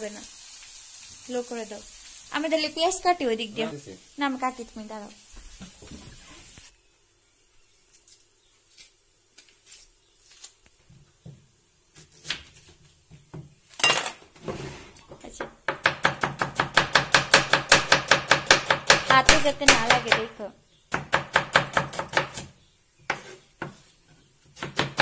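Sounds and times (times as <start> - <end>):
knife chopping on wooden board: 15.4 - 20.3, 20.9 - 22.5, 23.1 - 23.8, 24.5 - 25.0.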